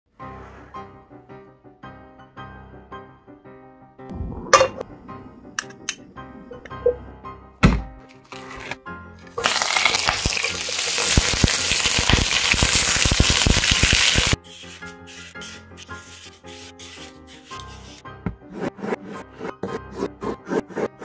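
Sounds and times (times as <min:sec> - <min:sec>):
soft background music: 0:00.1 - 0:11.0, 0:14.4 - 0:21.0
sausages sizzling in a frying pan: 0:09.4 - 0:14.4.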